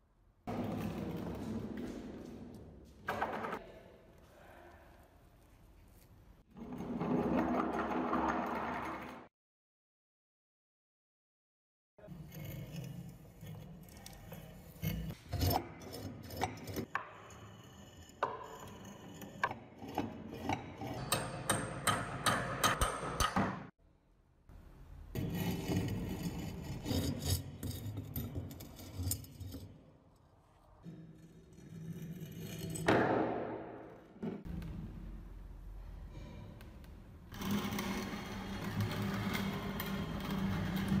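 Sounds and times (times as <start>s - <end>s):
metal-on-metal scraping: 12.0s - 23.0s, 37.3s - 41.0s.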